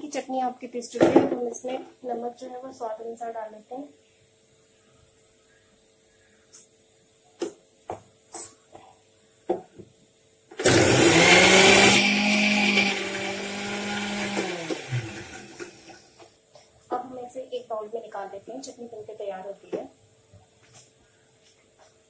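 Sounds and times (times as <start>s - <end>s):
mixer grinder motor running: 10.6s - 16.1s.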